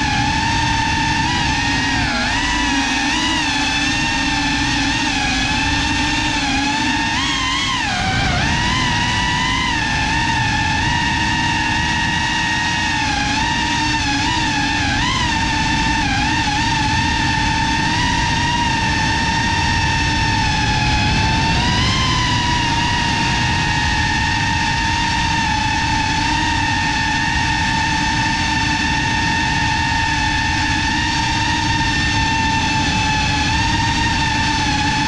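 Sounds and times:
low rushing noise: 0.0 - 26.0
drone propellers whining: 0.0 - 35.0.

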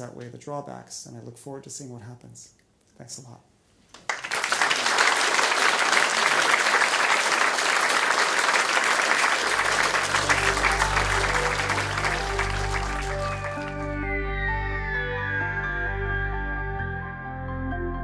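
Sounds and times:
audience applauding: 4.0 - 14.0
music with low held notes: 9.5 - 18.0.

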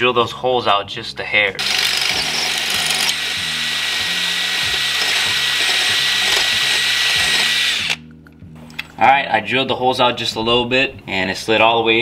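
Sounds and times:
power drill grinding through steel: 1.6 - 8.0.

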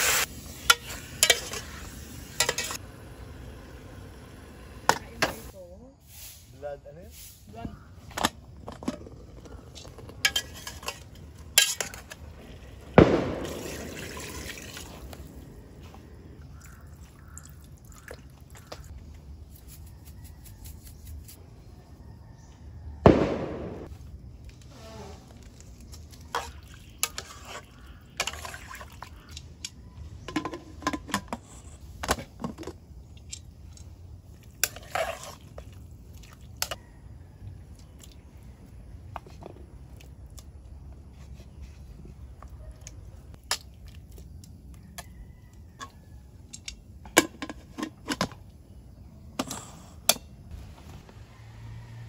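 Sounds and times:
pots and utensils clinking: 0.6 - 2.8, 10.1 - 12.2, 30.3 - 32.6.

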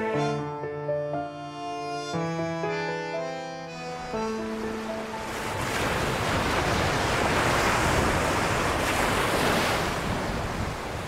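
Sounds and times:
sea surf washing in: 4.4 - 11.0.

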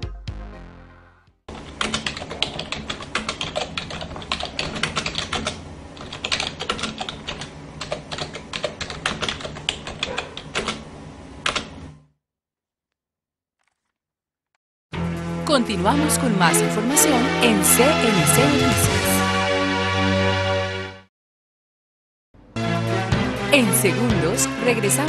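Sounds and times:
keyboard typing clicks: 1.6 - 10.8.

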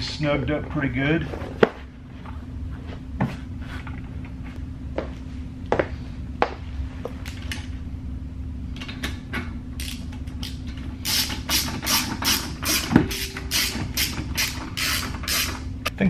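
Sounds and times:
ratchet clicking: 9.8 - 15.7.

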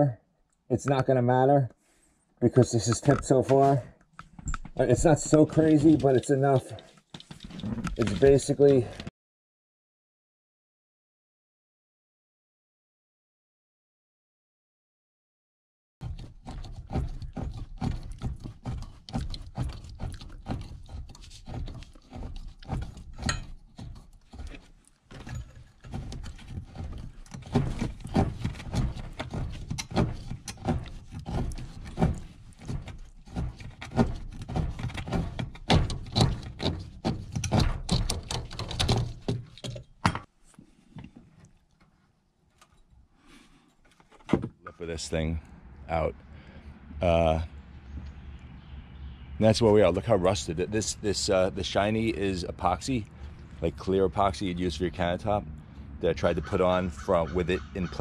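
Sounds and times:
plastic fitting knocks and scrapes: 16.0 - 40.3, 43.9 - 44.7.

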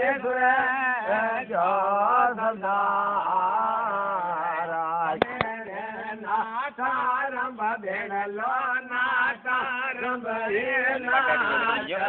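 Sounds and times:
man chanting: 0.0 - 12.0
sharp clicks: 5.2 - 5.6.

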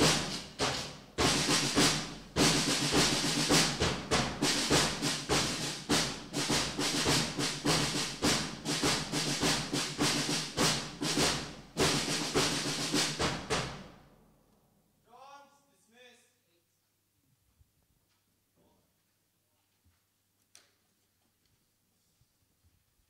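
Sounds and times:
drums beating march rhythm: 0.0 - 14.2.

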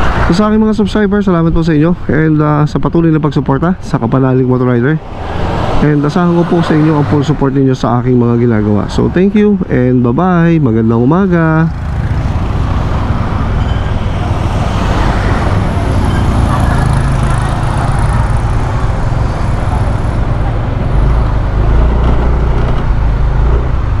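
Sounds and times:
scooter road noise: 4.4 - 9.9, 10.8 - 24.0.

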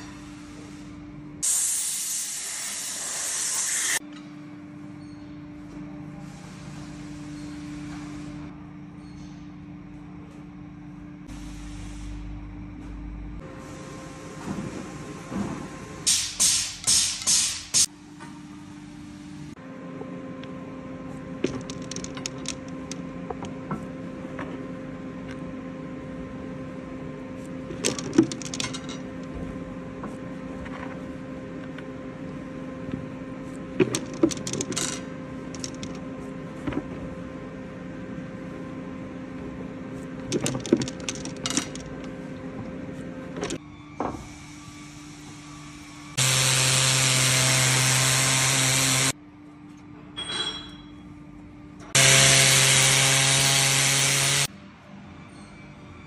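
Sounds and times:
short hissing bursts: 1.4 - 4.0.

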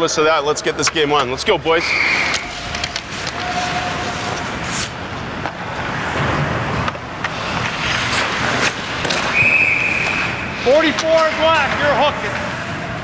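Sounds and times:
referee's whistle: 1.8 - 2.5, 9.3 - 10.5
skates scraping on ice: 1.9 - 12.9
hockey stick and body knocks: 5.4 - 10.2.

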